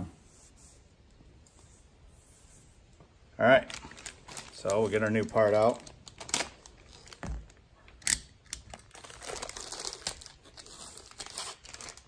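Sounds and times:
plastic bag crinkling: 3.6 - 7.6, 8.5 - 12.0.

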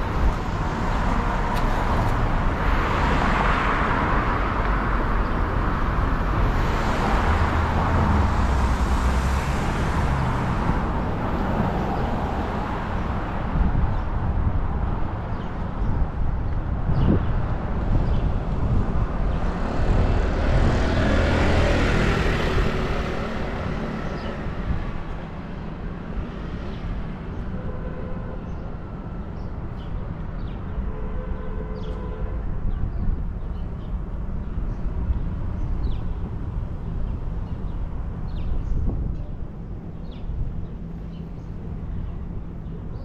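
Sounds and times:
steady traffic hum: 0.0 - 43.0
vehicle passing: 19.5 - 24.8.

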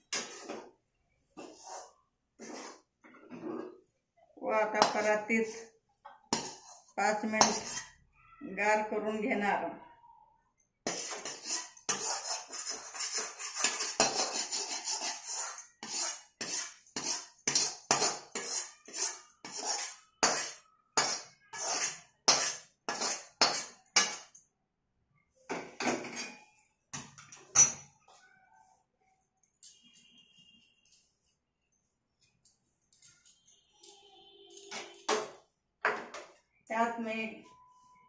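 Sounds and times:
metal spoon scraping metal pan: 0.0 - 0.8, 1.4 - 3.8, 4.6 - 5.7, 6.3 - 8.1, 10.8 - 24.4, 34.6 - 36.1.

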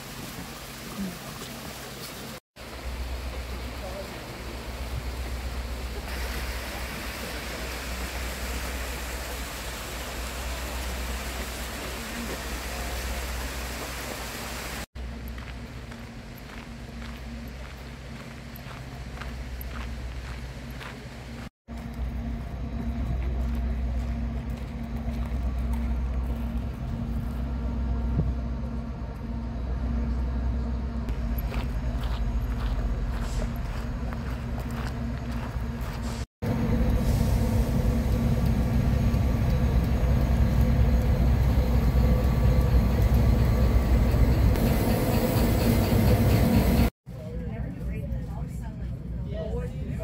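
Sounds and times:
waterfall rushing: 0.0 - 14.9
diesel locomotive engine idling: 2.6 - 49.3.

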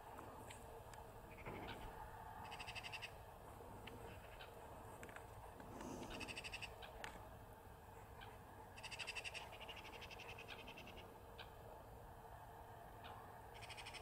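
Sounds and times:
high-pitched trilling bird calls: 2.4 - 3.2, 6.1 - 7.0, 8.2 - 11.5, 13.6 - 14.0.

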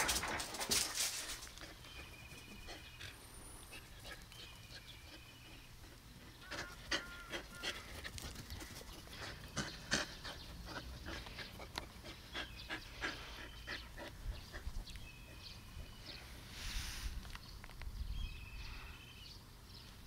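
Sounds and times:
dog panting: 1.2 - 16.1
faint bird chirps: 17.4 - 20.0.

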